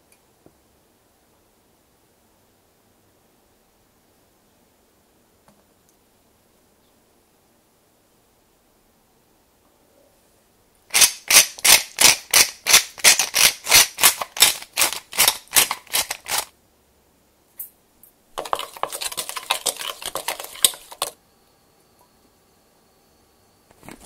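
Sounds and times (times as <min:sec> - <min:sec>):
utensil scraping a steel bowl: 0:18.4 - 0:21.2.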